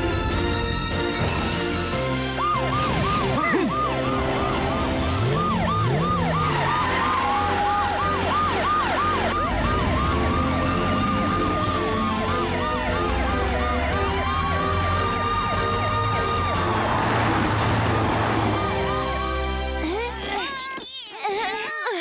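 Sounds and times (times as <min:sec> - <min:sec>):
background music: 0:00.0 - 0:20.8
cartoon siren yelping and wailing: 0:02.3 - 0:16.8.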